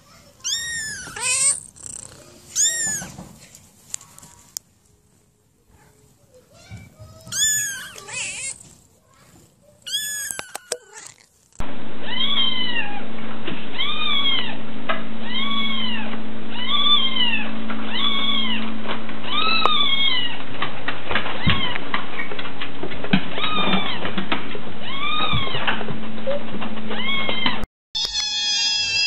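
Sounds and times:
kittens meowing: 0:00.4 - 0:03.2, 0:07.2 - 0:08.7, 0:09.8 - 0:11.3, 0:28.0 - 0:29.0.

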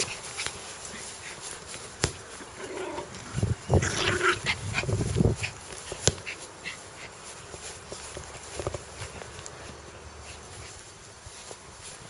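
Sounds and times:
dog growling: 0:02.6 - 0:04.6.

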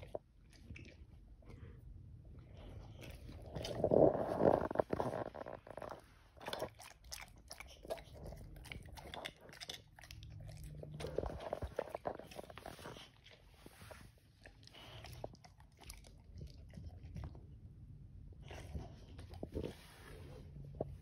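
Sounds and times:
dog crunching pea pod: 0:02.4 - 0:17.6.

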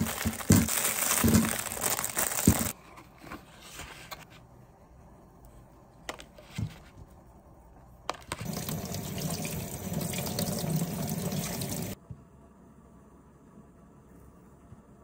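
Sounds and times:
tap water running onto vegetables: 0:08.4 - 0:12.0.

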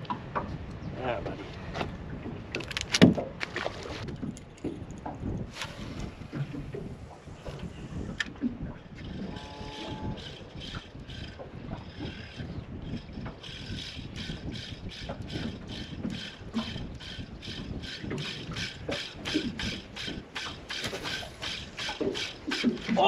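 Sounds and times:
wind and water rumble: 0:00.0 - 0:23.0
fishing reel whirring: 0:09.0 - 0:22.9.

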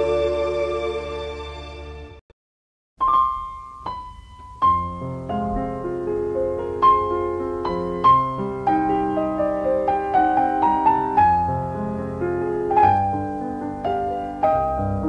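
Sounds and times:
slow piano melody: 0:03.0 - 0:15.0.

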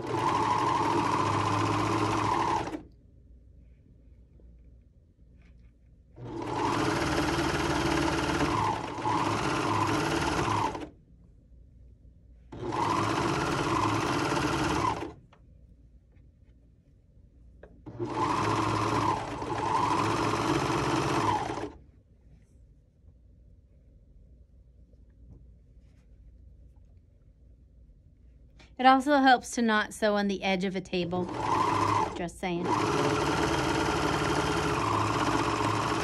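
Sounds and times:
serger stitching: 0:00.0 - 0:02.9, 0:06.2 - 0:11.0, 0:12.5 - 0:15.2, 0:17.8 - 0:21.8, 0:31.0 - 0:36.0.

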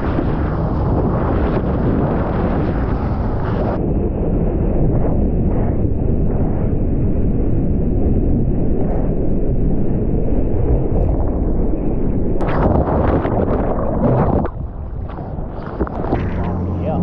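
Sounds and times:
muffled surf and wind: 0:00.0 - 0:17.0
water splashing: 0:12.4 - 0:17.0.

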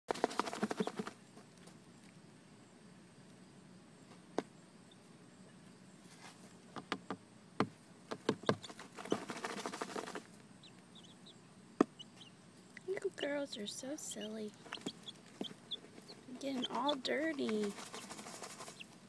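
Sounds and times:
chicks cheeping: 0:00.2 - 0:01.1, 0:08.4 - 0:19.0.

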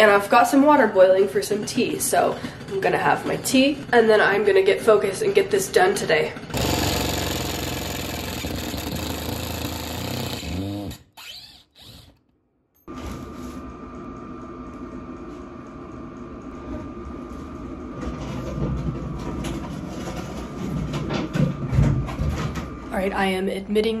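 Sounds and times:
impact driver hammering screw into wood: 0:06.5 - 0:12.2.

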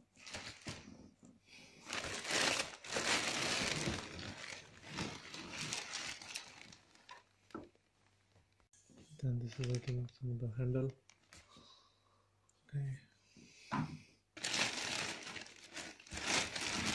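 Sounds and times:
plastic bags crinkling: 0:00.2 - 0:00.8, 0:01.8 - 0:07.9, 0:09.4 - 0:11.4, 0:14.4 - 0:16.9.

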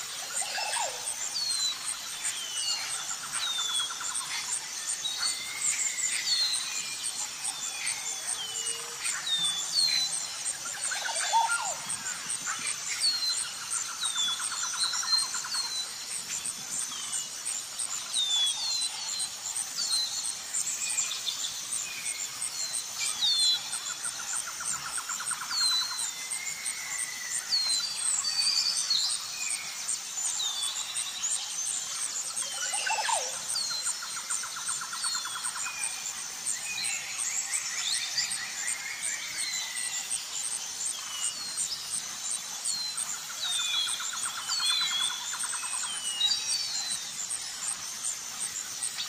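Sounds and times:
high insect-like hum: 0:00.0 - 0:49.0.

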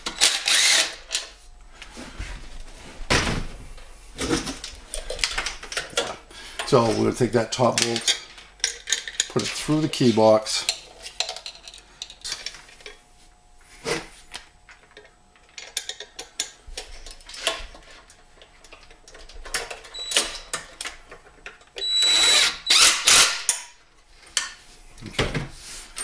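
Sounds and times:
cordless drill driving bolt: 0:00.0 - 0:01.0, 0:21.8 - 0:23.6.

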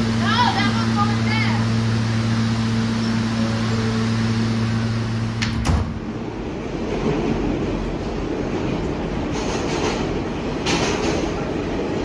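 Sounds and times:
subway wheels rumbling on track: 0:00.0 - 0:12.0
train clatter: 0:06.8 - 0:12.0.

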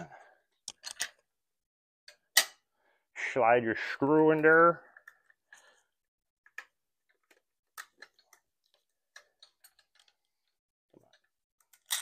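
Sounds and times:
metal parts and tools clicking: 0:00.6 - 0:01.2, 0:06.5 - 0:12.0.

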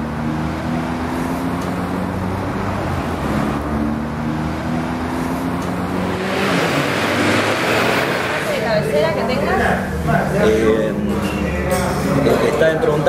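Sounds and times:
road noise: 0:00.0 - 0:13.0
vehicle engines running: 0:00.0 - 0:13.0.

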